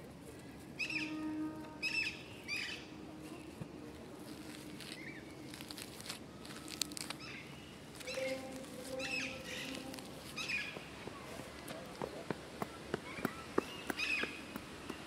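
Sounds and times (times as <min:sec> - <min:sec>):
fingers rustling leaves: 0:00.2 - 0:12.4
birds calling: 0:04.4 - 0:15.0.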